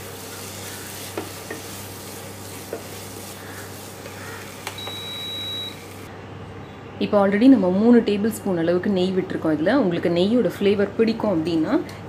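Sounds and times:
food sizzling in a pan: 0.0 - 6.1.

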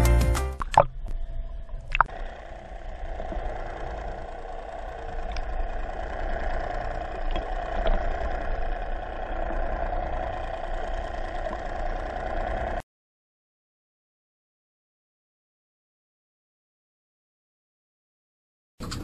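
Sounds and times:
faint clicks: 0.6 - 12.8
muffled underwater hum and hiss: 0.8 - 12.8.

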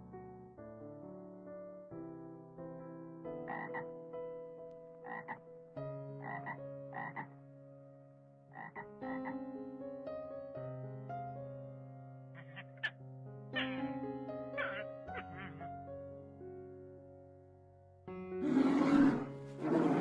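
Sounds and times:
soft piano music: 0.0 - 20.0
frog croaking: 3.4 - 3.9, 5.0 - 5.5, 6.1 - 7.4, 8.5 - 9.4, 12.4 - 13.0, 13.6 - 14.0, 14.6 - 15.7.

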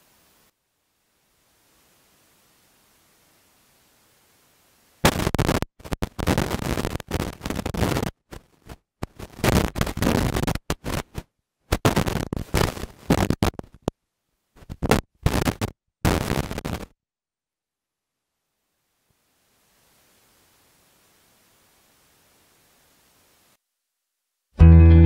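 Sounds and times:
rough noise bursts on microphone: 0.0 - 16.9.

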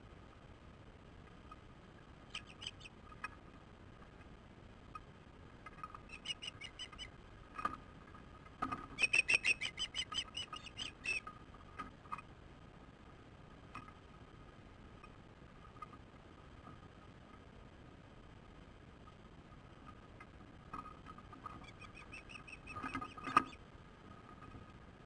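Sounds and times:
ospreys chirping: 2.3 - 3.0, 6.0 - 7.1, 9.0 - 11.3, 21.6 - 23.6.

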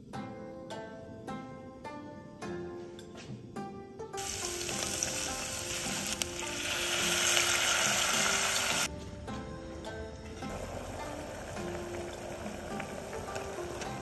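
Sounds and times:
plucked-string music: 0.0 - 14.0
food sizzling in hot oil: 4.2 - 8.9, 10.5 - 14.0.

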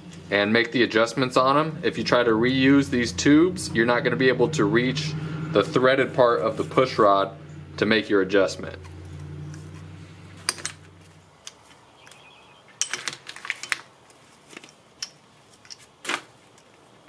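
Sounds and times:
low hum: 0.0 - 11.4
metal tubes clinking: 8.6 - 12.2, 12.8 - 15.9.

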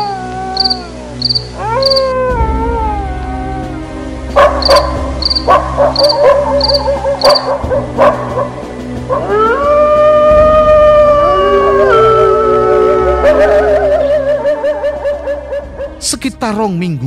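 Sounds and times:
dogs barking and yelping: 0.0 - 2.3, 4.3 - 9.9, 10.9 - 16.0
dog howling: 0.0 - 3.8, 4.4 - 15.9
low music drone: 0.0 - 17.0
crickets chirping: 0.6 - 2.1, 4.4 - 8.0.

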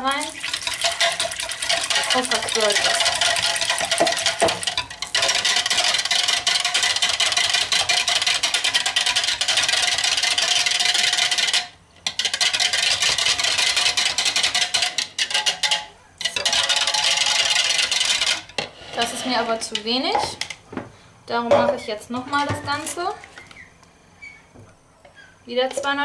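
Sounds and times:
wire whisk clattering in plastic jug: 0.4 - 20.5.

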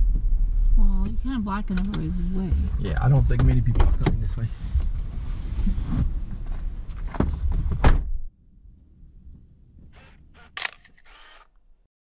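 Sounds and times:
low rumble with knocks: 0.0 - 10.0
sharp thunks: 1.8 - 4.3, 7.0 - 8.2
short clicks: 10.0 - 11.6.

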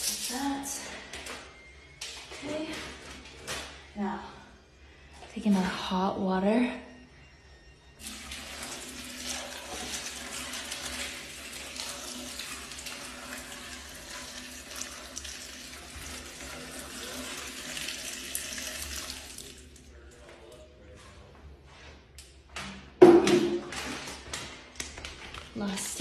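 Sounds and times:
hot water pouring into toilet: 8.0 - 19.8.

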